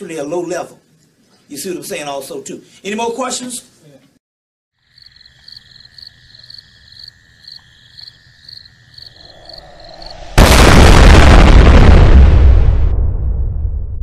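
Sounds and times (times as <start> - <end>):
insects chirping: 4.8 - 10.6
loud explosion boom: 9.2 - 14.0.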